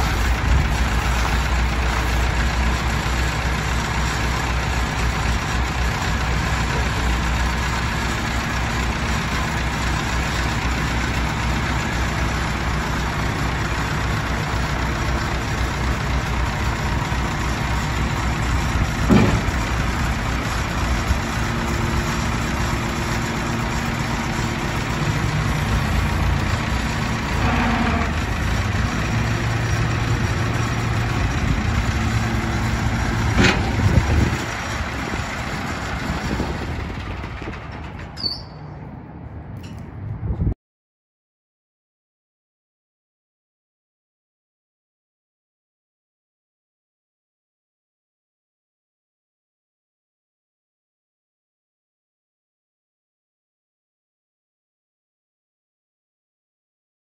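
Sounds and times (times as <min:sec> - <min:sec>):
tractor engine idling: 0:00.0 - 0:39.0.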